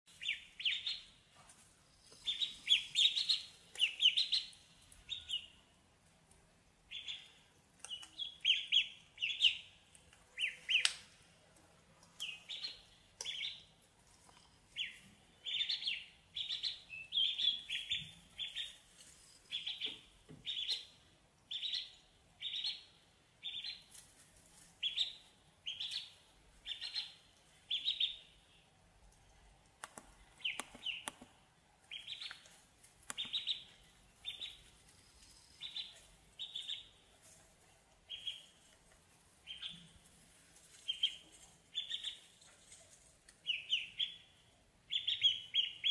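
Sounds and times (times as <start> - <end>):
ducklings peeping: 0.1 - 45.9
faint clicks: 29.0 - 31.4, 32.1 - 33.7.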